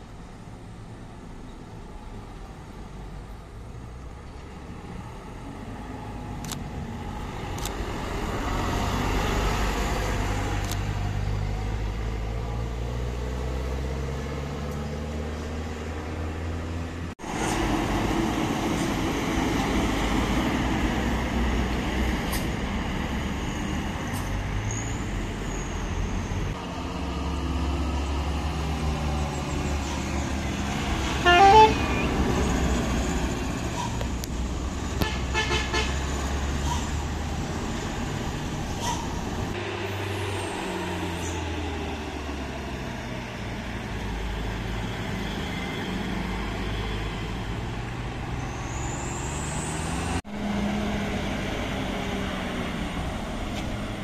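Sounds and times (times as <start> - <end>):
diesel bus engines: 0.0 - 54.0
multi-tone bus horn: 31.1 - 32.4, 35.0 - 36.1.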